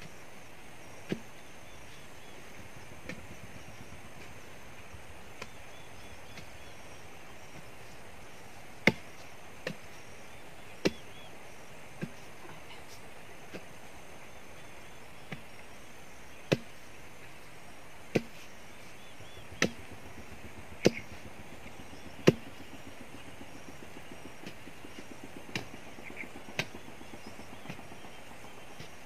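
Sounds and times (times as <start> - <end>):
tool chopping tree stump: 1.0 - 1.5, 8.8 - 10.0, 10.8 - 11.2, 11.9 - 12.2, 16.4 - 16.9, 18.1 - 18.4, 19.0 - 28.0.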